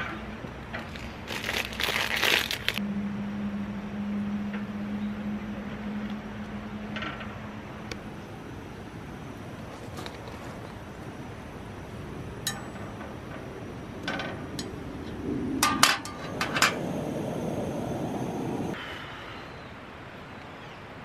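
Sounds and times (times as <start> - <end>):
stove hiss: 8.0 - 18.8.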